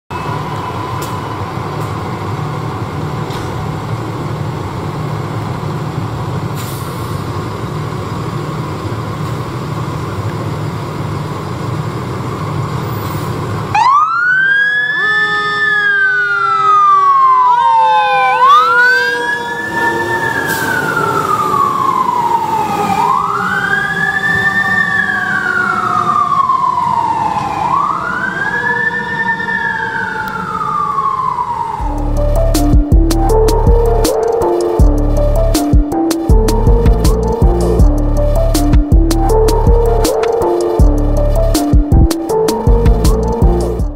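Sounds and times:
siren wailing: 0.1s - 3.0s, 13.7s - 43.9s
fire engine rumbling: 0.1s - 43.9s.

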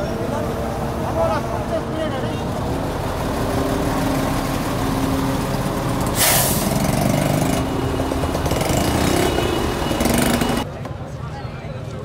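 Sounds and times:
heavy vehicle engine running: 0.0s - 10.7s
air brake hiss: 6.1s - 6.8s.

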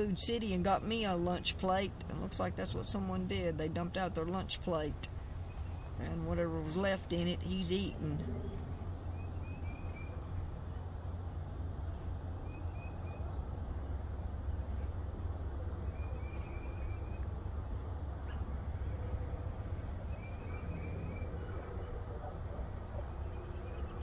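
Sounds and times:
steady low rumble: 0.0s - 24.0s.

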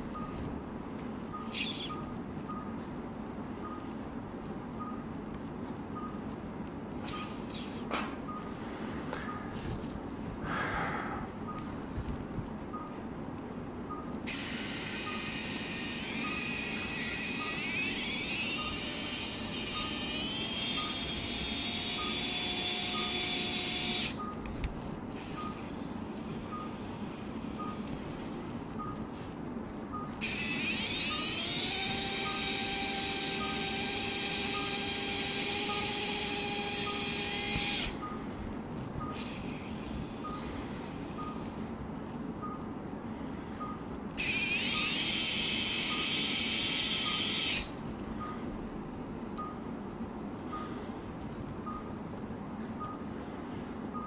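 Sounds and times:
surgical drill whining: 1.5s - 2.2s, 14.2s - 24.3s, 30.2s - 38.1s, 44.2s - 47.8s.

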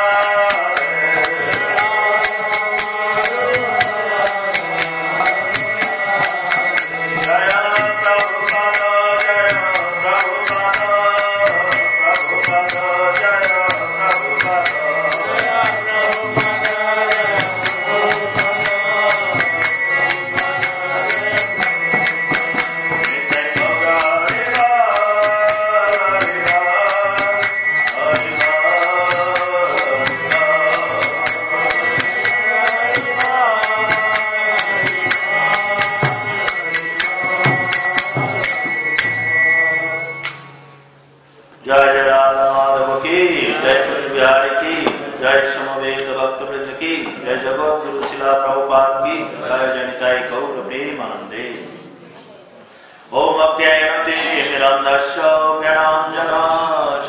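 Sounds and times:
man singing devotional chant: 0.0s - 40.6s, 41.6s - 51.8s, 53.0s - 57.0s
hand cymbals clashing: 0.0s - 41.0s.

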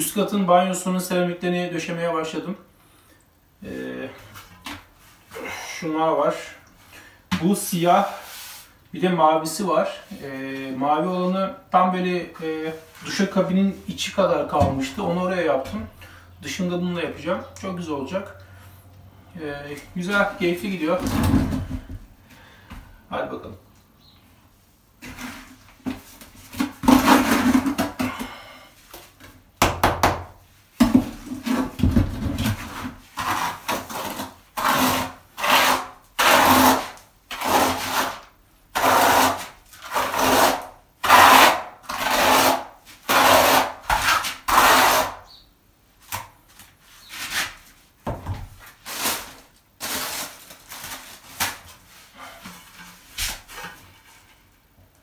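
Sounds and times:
steel trowel scraping tile adhesive: 32.7s - 38.2s, 38.8s - 45.2s.

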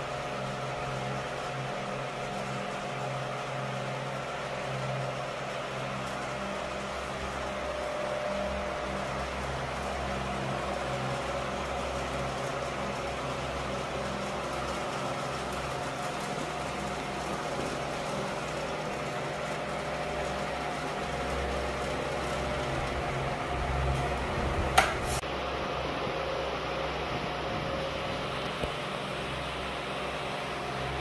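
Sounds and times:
air rushing from fan blades: 0.0s - 31.0s
fan motor humming: 0.0s - 31.0s
sharp click: 24.8s - 25.1s.

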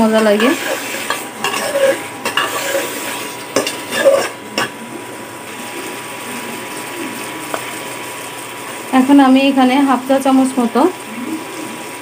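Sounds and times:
masala sizzling: 0.0s - 12.0s
metal spoon scraping a pot: 0.2s - 4.8s
spoon clinking against pot: 0.4s - 4.8s.

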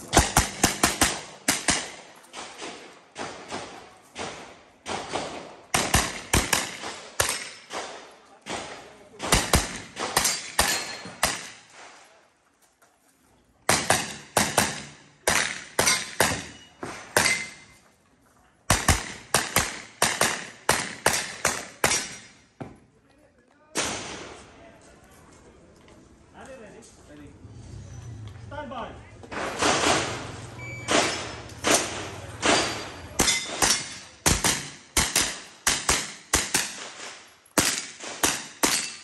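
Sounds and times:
gunshots echoing: 0.0s - 12.0s, 13.7s - 17.8s, 18.7s - 22.4s, 23.8s - 24.4s, 29.3s - 39.0s.

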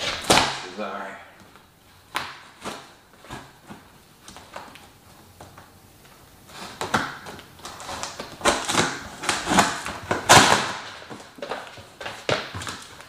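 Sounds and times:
knife cutting packing tape: 6.5s - 13.0s.

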